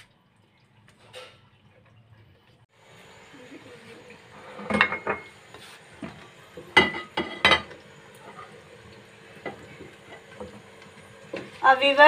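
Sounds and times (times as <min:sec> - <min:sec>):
dishes and utensils clinking: 0:04.4 - 0:05.4, 0:06.7 - 0:08.5.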